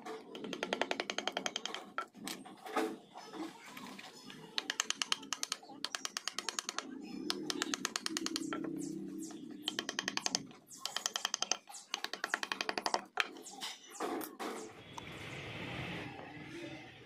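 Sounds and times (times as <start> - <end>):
mallet tapping chisel: 0.2 - 2.2, 4.6 - 13.5.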